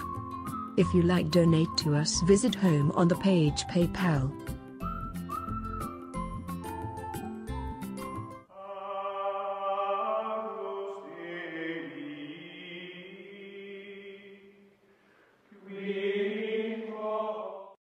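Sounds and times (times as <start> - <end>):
choir-like chant: 8.5 - 14.7, 15.5 - 17.8.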